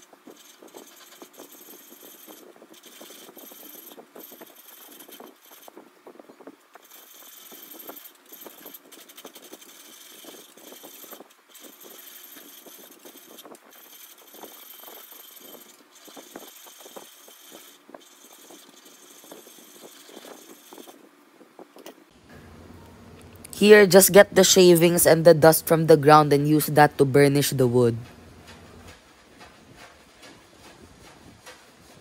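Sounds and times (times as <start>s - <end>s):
chisel scraping wood on lathe: 0.0s - 5.8s, 6.7s - 21.0s.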